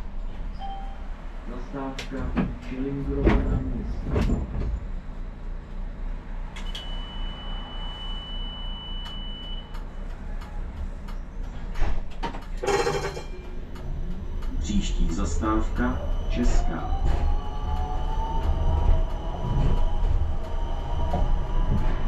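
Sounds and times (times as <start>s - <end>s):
tram humming: 0.0s - 22.0s
high steady beep: 6.6s - 9.9s.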